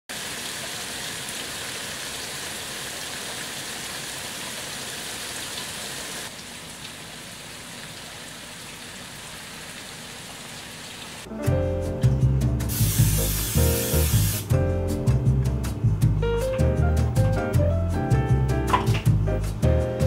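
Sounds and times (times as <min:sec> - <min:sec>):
steady rain on grass and roof: 0:00.1 - 0:11.3.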